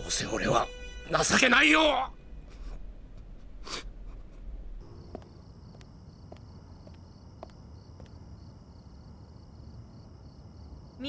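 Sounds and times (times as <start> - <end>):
crickets chirring: 4.8 - 11.0.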